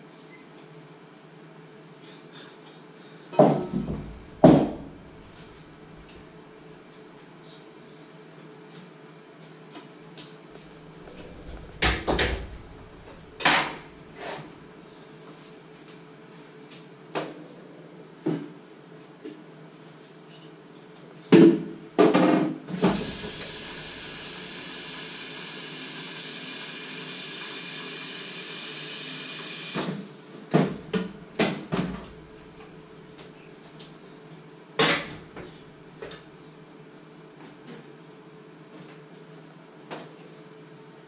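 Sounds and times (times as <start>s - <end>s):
kitchen tap running: 22.8s - 29.8s.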